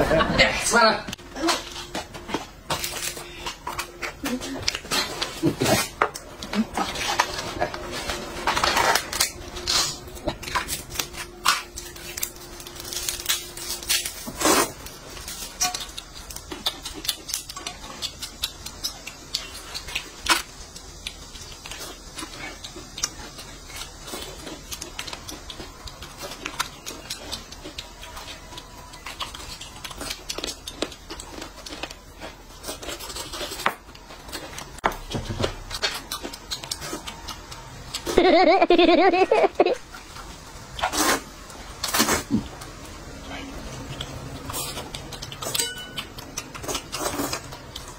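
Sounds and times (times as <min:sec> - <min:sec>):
food wrapper crackling: 0:01.4 - 0:34.8
chewing: 0:01.4 - 0:38.2, 0:39.8 - 0:47.9
utensils clinking on metal bowls: 0:45.4 - 0:46.1.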